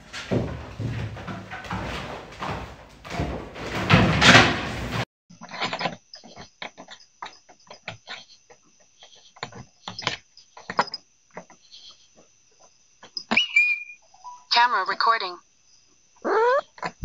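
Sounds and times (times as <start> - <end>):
animal sniffing and pawing: 0.0 - 5.0.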